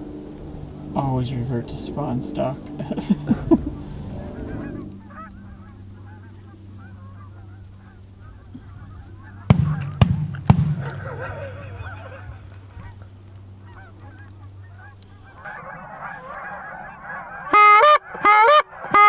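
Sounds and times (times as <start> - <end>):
geese honking: 0.0 - 19.0
shotgun shots: 9.5 - 11.0.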